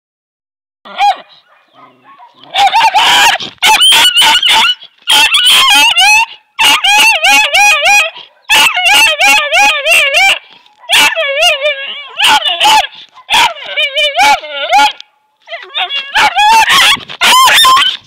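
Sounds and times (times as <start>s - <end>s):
puppy barking: 0.9s - 18.0s.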